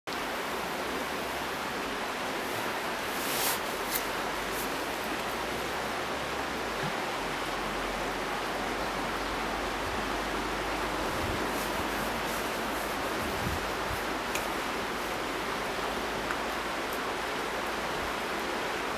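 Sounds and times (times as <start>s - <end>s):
steady rushing noise: 0.4s - 6.4s, 9.8s - 16.2s.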